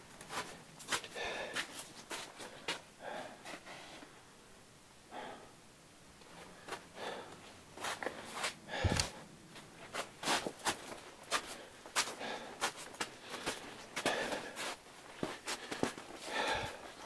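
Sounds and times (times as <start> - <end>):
footsteps crunching on snow: 0.2 - 2.8, 9.8 - 16.8
person breathing hard: 0.3 - 4.2, 5.1 - 5.6, 6.4 - 9.3, 11.3 - 17.0.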